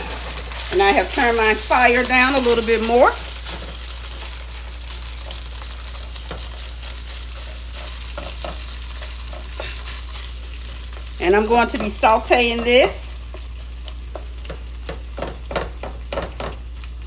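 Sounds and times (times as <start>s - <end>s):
beef sizzling in oil: 0.0s - 17.0s
spatula tapping and scraping pan: 6.1s - 10.3s, 10.9s - 16.6s.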